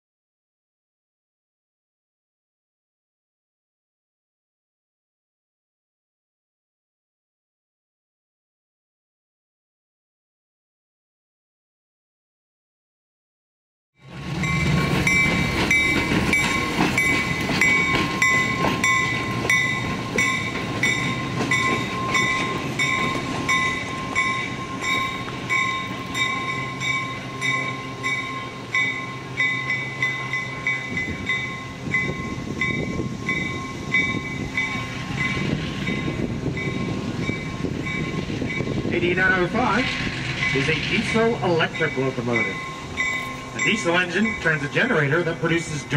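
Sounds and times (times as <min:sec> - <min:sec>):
diesel locomotive engine running: 0:14.0 - 0:45.9
locomotive bell ringing: 0:14.0 - 0:45.9.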